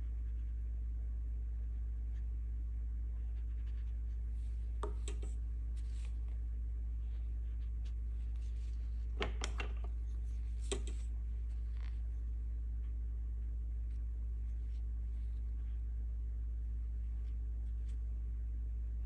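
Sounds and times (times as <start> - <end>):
steady low hum: 0.0 - 19.0
brush tapping and scraping: 3.2 - 6.4, 7.0 - 13.0.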